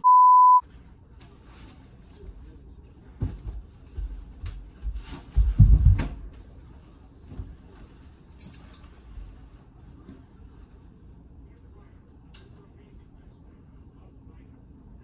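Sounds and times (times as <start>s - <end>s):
knocks and thumps: 4.8s - 6.3s.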